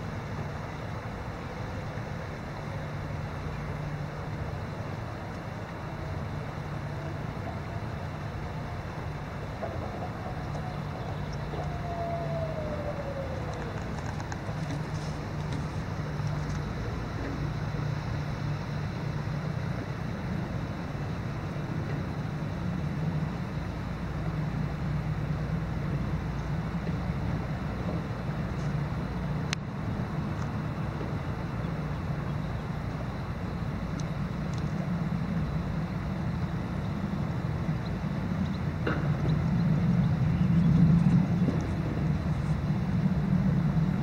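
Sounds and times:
low rumble: 0:02.4 - 0:18.5.

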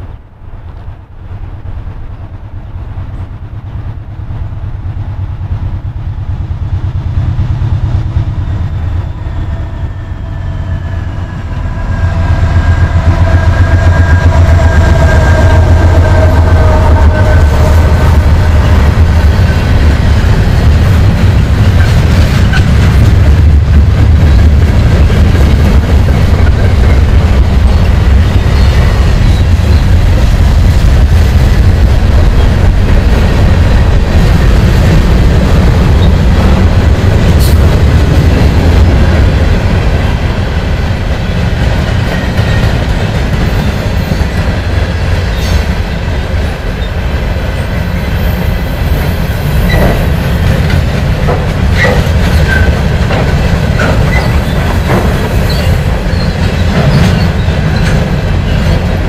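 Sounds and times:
freight train rumbling past: 0:00.0 - 0:59.0
wheels clacking over rail joints: 0:49.6 - 0:59.0.

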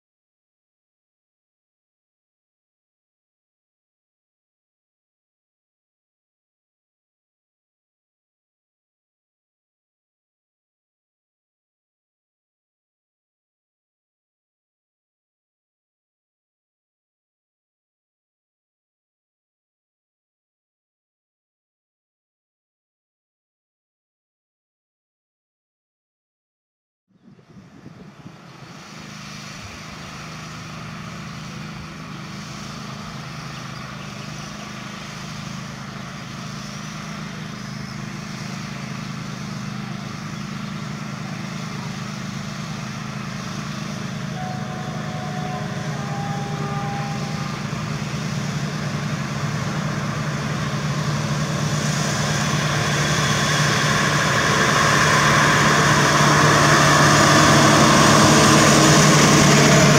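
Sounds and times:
diesel locomotive engine drone: 0:27.1 - 0:59.9
wheel and rail noise: 0:27.4 - 0:59.9.

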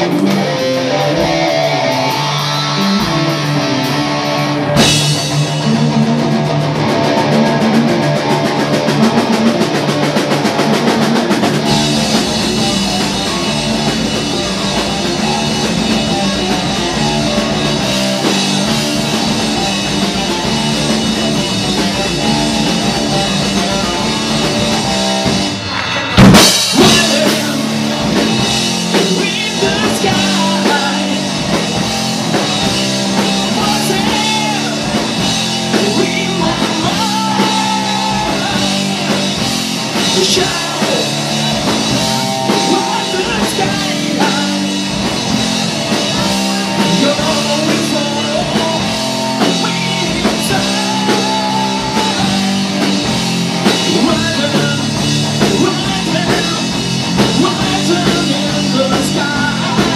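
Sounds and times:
man singing: 0:00.0 - 0:04.0, 0:26.6 - 0:31.9, 0:33.1 - 0:59.9
drum kit: 0:00.0 - 0:59.9
electric guitars: 0:00.0 - 0:59.9.

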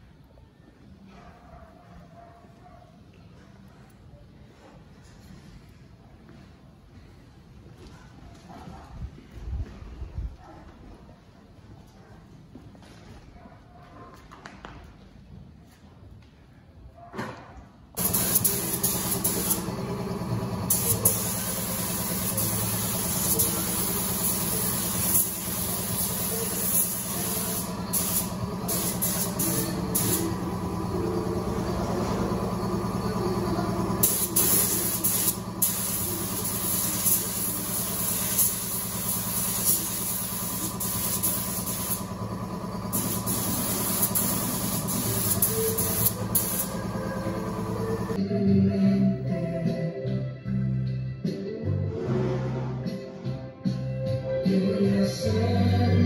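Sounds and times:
motor hum: 0:18.0 - 0:26.2, 0:27.2 - 0:37.9, 0:38.6 - 0:48.2
paint spray gun hissing: 0:18.0 - 0:48.2.

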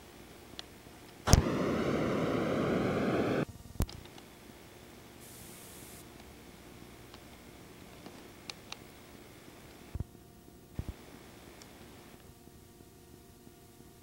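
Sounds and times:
loud static hiss: 0:00.0 - 0:12.7
faint high hiss: 0:01.2 - 0:10.0.

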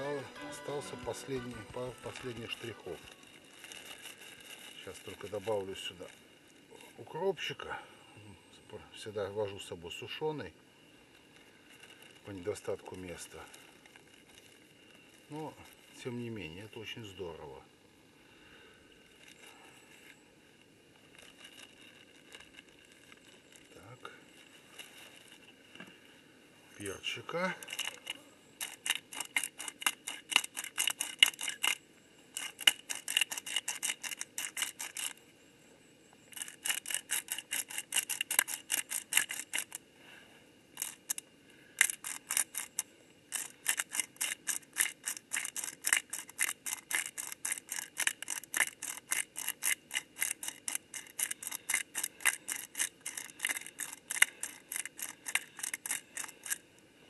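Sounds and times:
pepper mill grinder clicking: 0:27.6 - 0:31.8, 0:32.4 - 0:35.2, 0:36.4 - 0:39.8, 0:41.8 - 0:56.6.

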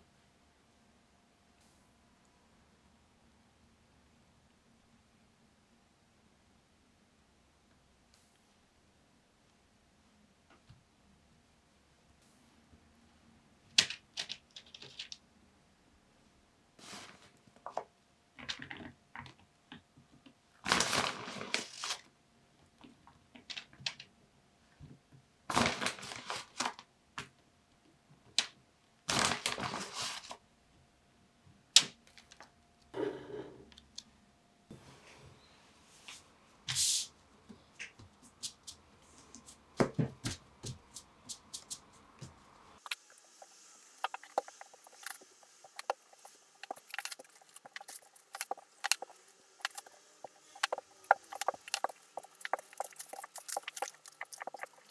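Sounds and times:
plastic bag and paper crinkling: 0:20.6 - 0:22.1, 0:25.5 - 0:26.9, 0:29.1 - 0:30.4, 0:44.0 - 0:54.9.

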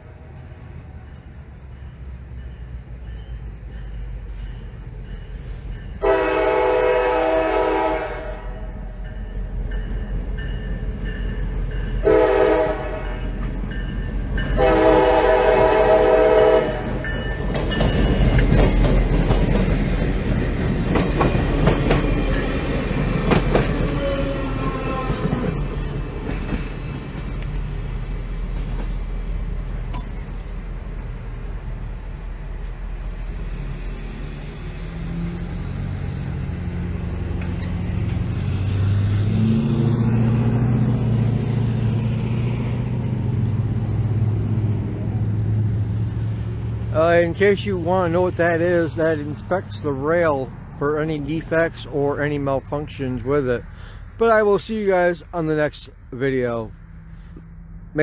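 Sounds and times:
locomotive engine rumble: 0:00.0 - 0:58.0
train air horn blasts: 0:05.4 - 0:09.0, 0:12.0 - 0:13.3, 0:14.5 - 0:17.2, 0:23.8 - 0:25.6
train wheels clattering on rails: 0:16.8 - 0:29.1.

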